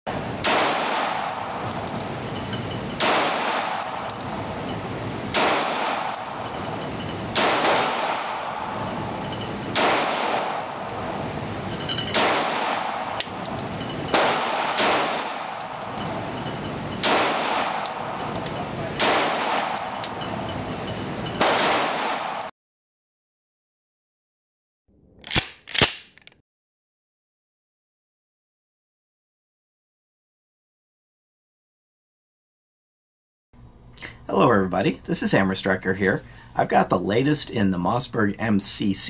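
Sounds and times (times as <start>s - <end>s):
pistol shots echoing indoors: 0.4s - 1.6s, 3.0s - 4.1s, 5.3s - 6.3s, 7.4s - 8.8s, 9.7s - 10.9s, 12.2s - 13.2s, 14.1s - 15.6s, 19.0s - 20.0s, 21.4s - 22.5s.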